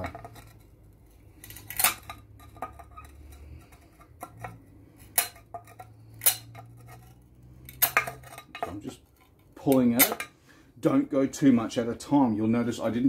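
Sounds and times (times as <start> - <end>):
ceramic tile cracking and clinking: 0.0 - 10.3.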